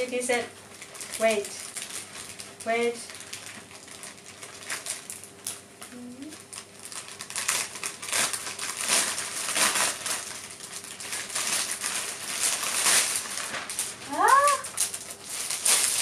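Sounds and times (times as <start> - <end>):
packaging bag rustling: 0.7 - 5.3, 6.5 - 16.0.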